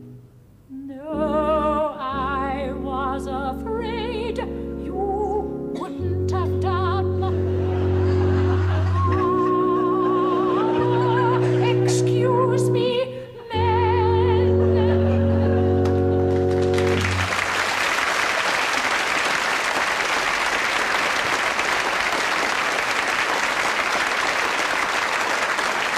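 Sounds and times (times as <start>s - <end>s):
woman singing with vibrato: 0.7s - 16.3s
sustained chord: 1.0s - 17.6s
audience applauding: 7.4s - 12.0s, 15.8s - 25.9s.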